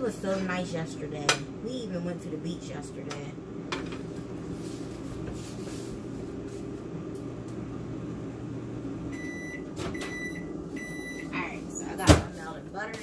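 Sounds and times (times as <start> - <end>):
air fryer fan hum: 0.0 - 13.0.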